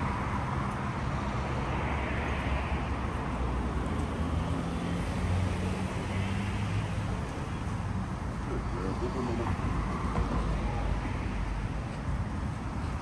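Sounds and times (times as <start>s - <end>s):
low rumble of road traffic: 0.0s - 13.0s
vehicle engine hum: 0.0s - 13.0s.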